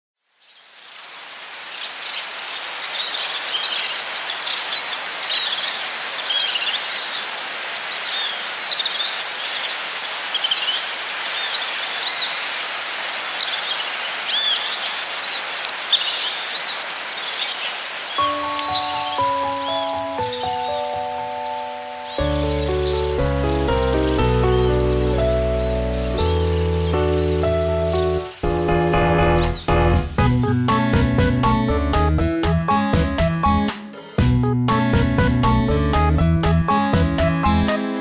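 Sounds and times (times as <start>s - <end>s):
birds chirping and whistling: 2.4s - 30.3s.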